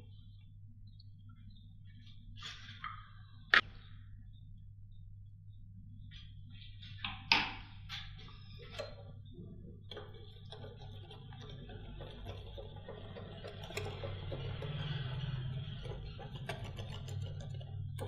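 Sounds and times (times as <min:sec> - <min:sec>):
faint low hum: 0:00.0 - 0:18.0
whisk tapping against glass bowl: 0:09.8 - 0:18.0.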